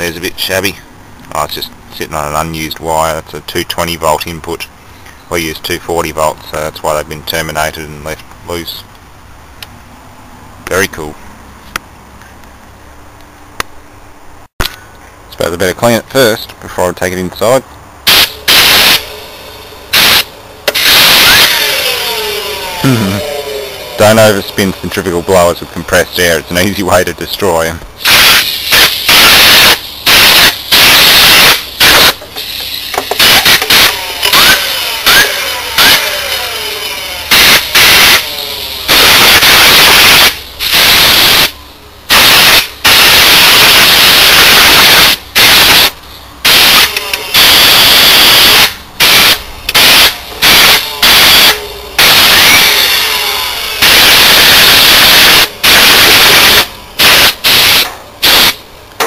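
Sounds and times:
cooling blower whirring: 20.7 - 26.5.

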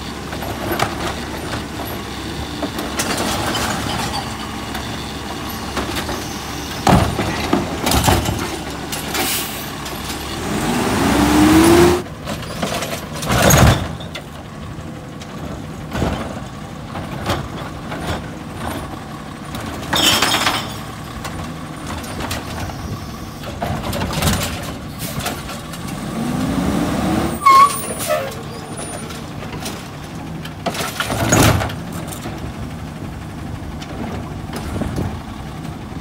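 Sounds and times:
garbage truck engine revving: 5.2 - 12.6, 24.4 - 32.1.

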